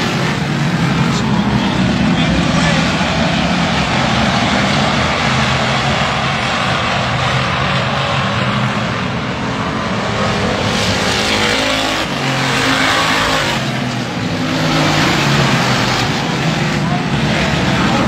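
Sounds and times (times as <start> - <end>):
race car engines: 0.0 - 18.0.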